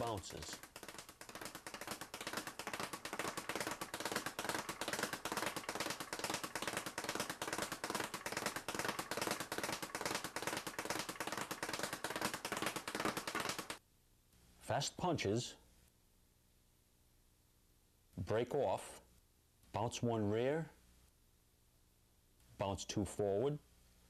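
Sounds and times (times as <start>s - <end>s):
speed bag rattling: 0.0s - 13.8s.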